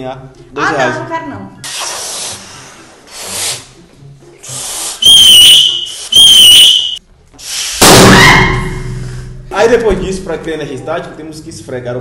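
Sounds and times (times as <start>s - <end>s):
breaths blown into balloons: 1.6s - 6.4s, 7.4s - 7.9s.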